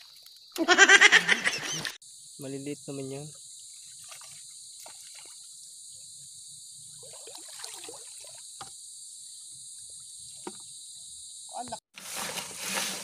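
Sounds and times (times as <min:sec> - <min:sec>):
high-pitched insect chorus: 0:00.0 - 0:13.0
water splashing: 0:03.8 - 0:05.5, 0:07.0 - 0:08.5.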